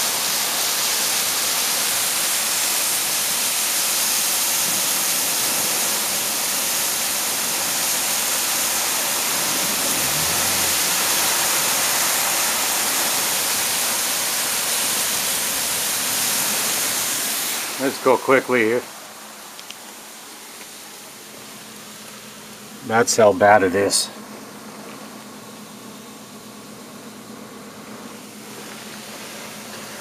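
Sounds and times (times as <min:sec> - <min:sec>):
water pouring off a roof: 0:00.0 - 0:22.2, 0:28.2 - 0:30.0
torrential rain hiss: 0:00.0 - 0:30.0.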